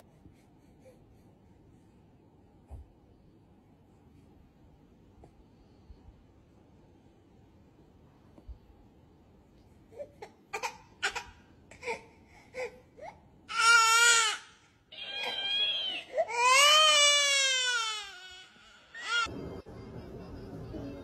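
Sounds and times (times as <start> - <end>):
baby crying: 10.0 - 19.3.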